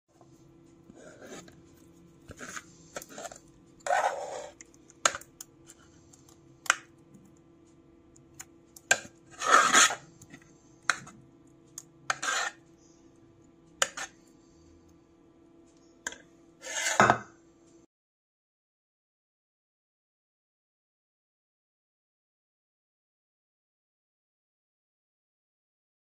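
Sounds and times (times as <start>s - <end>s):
faint steady hum: 0.1s - 16.6s.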